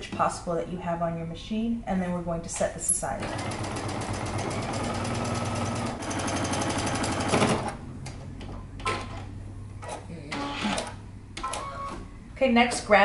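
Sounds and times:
electric sewing machine running: 0:03.2 - 0:07.8.

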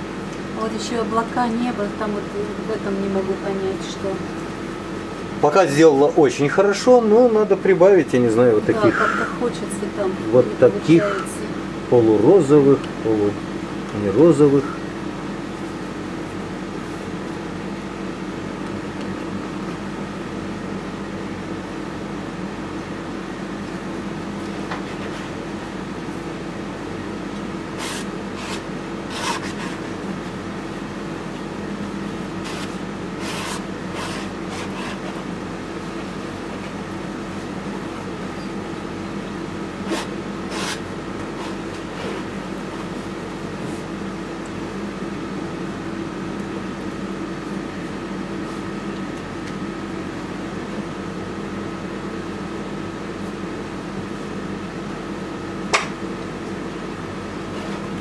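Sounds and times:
appliance hum: 0:00.0 - 0:58.0
palette knife scraping canvas: 0:27.8 - 0:29.9, 0:32.4 - 0:35.3, 0:39.8 - 0:42.3.

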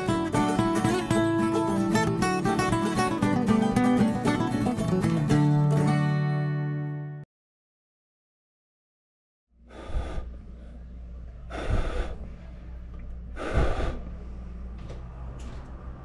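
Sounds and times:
loud breaths close to microphone: 0:09.6 - 0:14.8
low room hum: 0:09.6 - 0:16.0.

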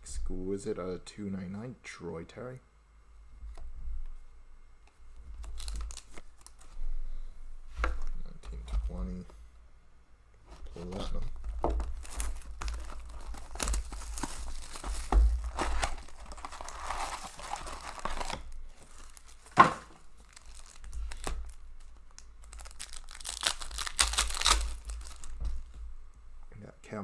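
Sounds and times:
packaging tearing and crinkling: 0:05.3 - 0:06.7, 0:10.7 - 0:25.7.

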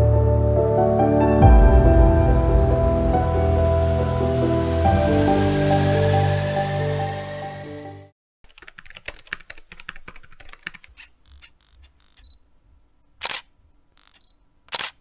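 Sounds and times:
camera shutter click: 0:13.2 - 0:15.0.

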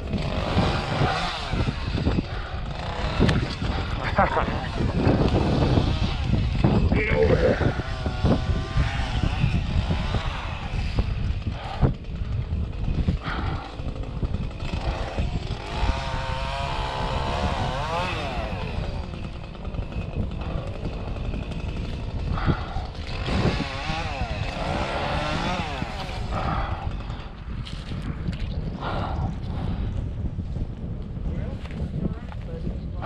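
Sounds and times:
steady low rumble: 0:00.0 - 0:17.5
engine running: 0:00.0 - 0:27.9.

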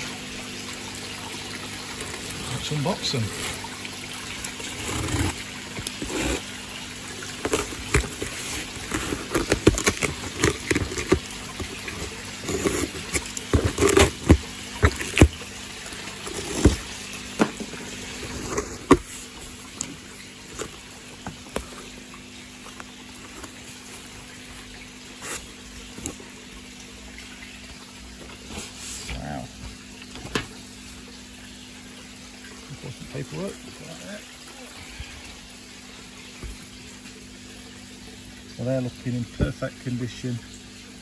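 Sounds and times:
running water: 0:00.0 - 0:41.0
packaging clicks and crinkles: 0:07.2 - 0:15.4.

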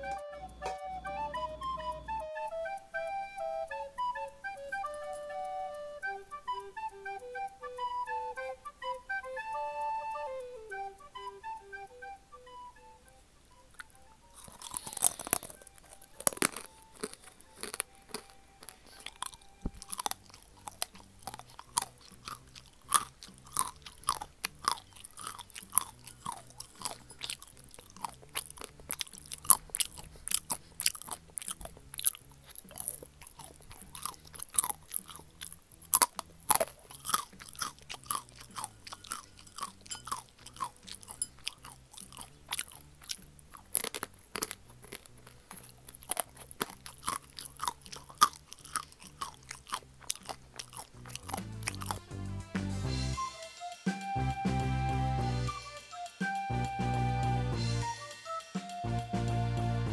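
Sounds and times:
crisp crunching and chewing: 0:13.7 - 0:52.3.

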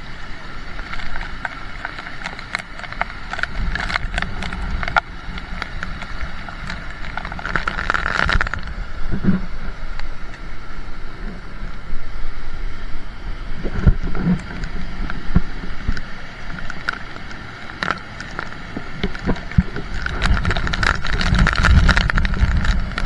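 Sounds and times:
fast-flowing stream rushing: 0:00.0 - 0:23.0
heavy rain: 0:00.0 - 0:23.0
wind buffeting microphone: 0:13.3 - 0:23.0.

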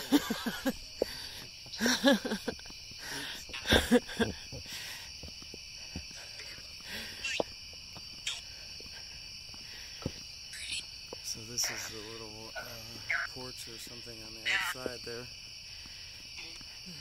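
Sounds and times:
night insects chirring: 0:00.0 - 0:17.0
person speaking: 0:11.2 - 0:15.3.

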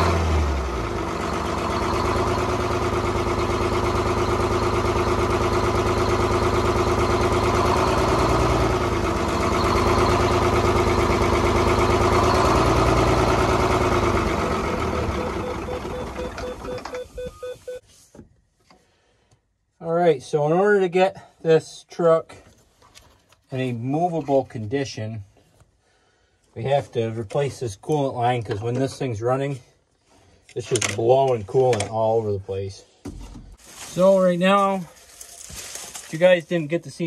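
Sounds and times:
diesel truck engine idling: 0:00.0 - 0:17.8.

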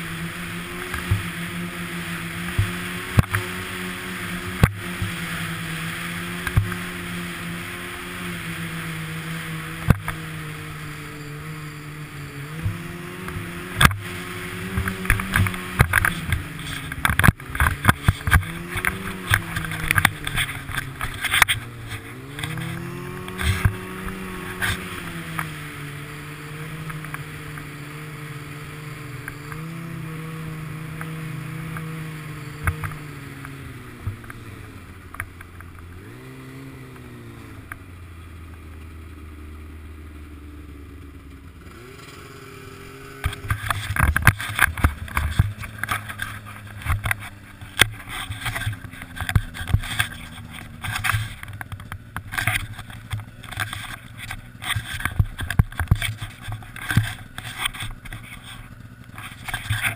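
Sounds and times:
snowmobile engine running: 0:00.0 - 0:59.9.

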